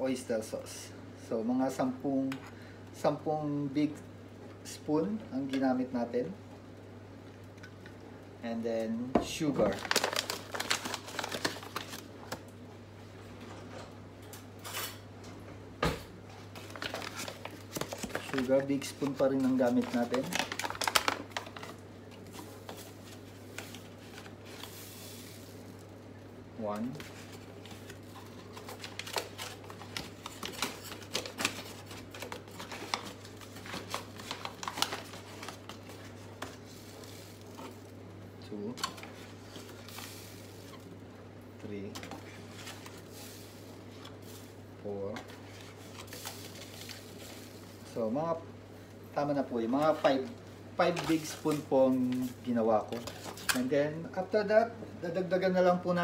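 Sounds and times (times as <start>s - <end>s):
plastic bag crinkling: 9.6s - 12.4s, 16.5s - 25.9s, 27.0s - 38.0s, 42.1s - 48.0s, 50.8s - 53.7s.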